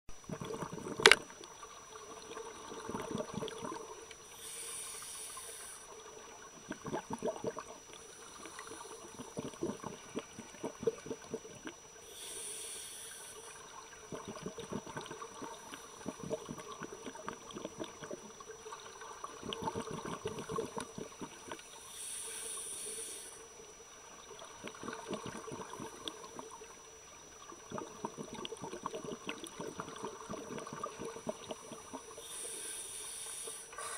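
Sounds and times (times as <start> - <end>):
bubbling exhalations: 0.2 - 1.2, 6.6 - 12.3, 14.0 - 18.3, 19.3 - 21.6, 24.6 - 26.2, 27.6 - 32.4
regulator air hiss: 4.2 - 6.0, 12.0 - 13.7, 21.8 - 23.5, 32.2 - 33.9.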